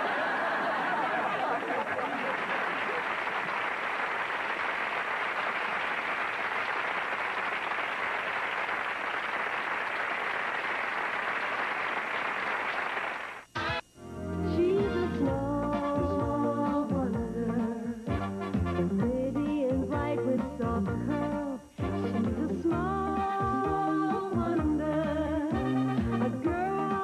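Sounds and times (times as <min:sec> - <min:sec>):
audience applause: 0:00.0 - 0:13.5.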